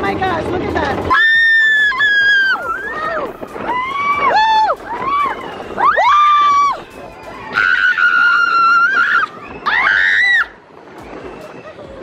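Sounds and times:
rushing noise of moving ride: 0.0s - 12.0s
roller coaster riders screaming: 1.0s - 12.0s.

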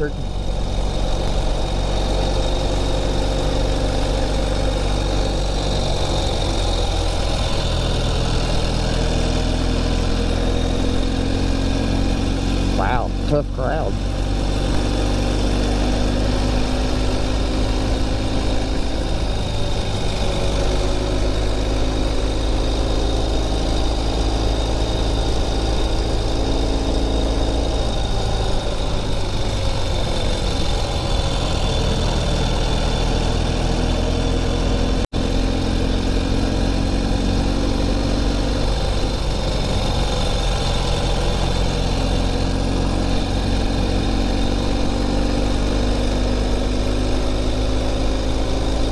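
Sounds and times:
motorcycle engine running: 0.0s - 48.9s
wind and road noise: 0.0s - 48.9s.

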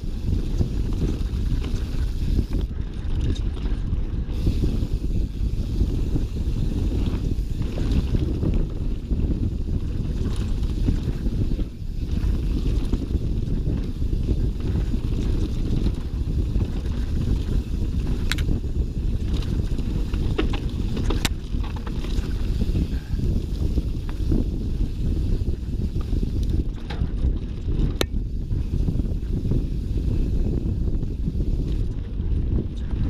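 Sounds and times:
tyres running over dirt: 0.0s - 32.2s
wind buffeting microphone: 0.0s - 33.0s.

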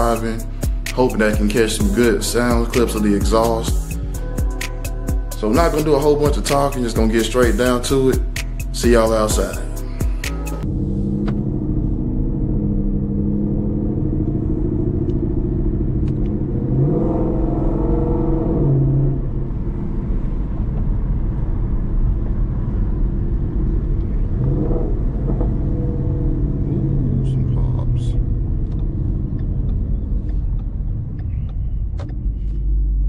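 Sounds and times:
car engine heard from cabin: 10.6s - 33.0s.

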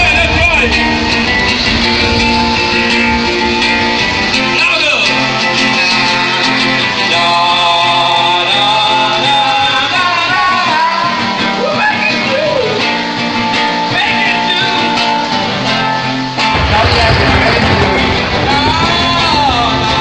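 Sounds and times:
guitar: 0.0s - 20.0s
person singing: 4.4s - 12.9s.

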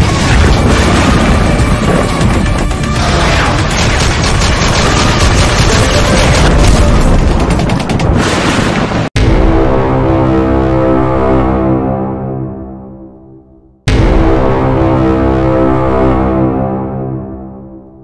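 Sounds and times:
music: 0.0s - 8.1s, 9.2s - 18.0s
rattle of sharp shots: 0.0s - 8.6s.

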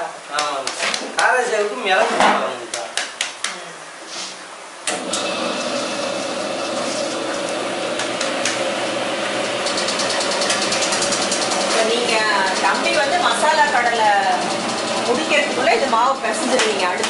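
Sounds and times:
machine motor running: 4.9s - 17.0s
fast ticking rattle: 9.5s - 17.0s.

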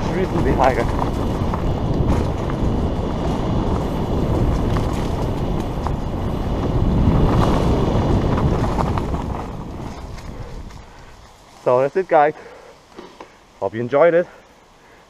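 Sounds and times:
wind buffeting microphone: 0.0s - 11.4s
bike clicks and rattles: 0.0s - 11.9s
bike tyres rolling over dirt: 0.0s - 15.0s.

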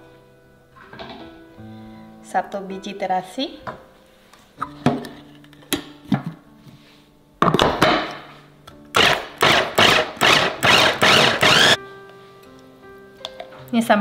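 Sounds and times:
electric food chopper bursts: 9.0s - 11.8s.

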